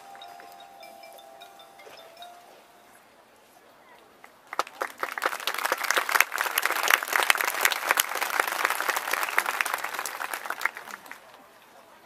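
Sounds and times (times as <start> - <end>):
audience clapping: 4.5 - 11.3.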